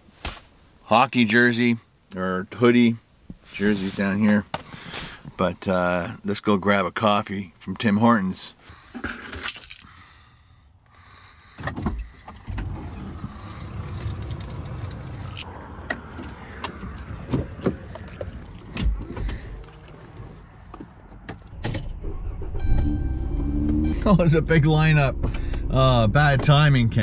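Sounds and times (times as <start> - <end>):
low steady rumble: 12.1 - 20.7, 21.7 - 27.0.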